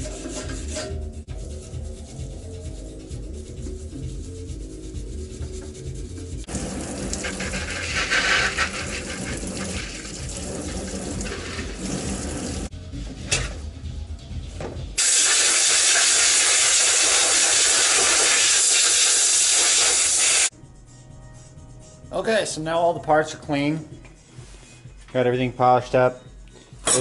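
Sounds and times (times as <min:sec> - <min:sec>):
background music: 0:00.0 - 0:18.0, 0:20.5 - 0:27.0
hose water running into tub: 0:06.5 - 0:12.7, 0:15.0 - 0:20.5
hose nozzle spraying hiss: 0:15.0 - 0:20.5.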